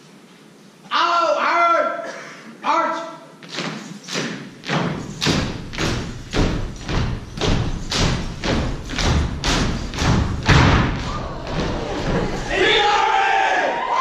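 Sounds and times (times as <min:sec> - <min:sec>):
loud thumps on stage floor: 0:04.7 - 0:12.4.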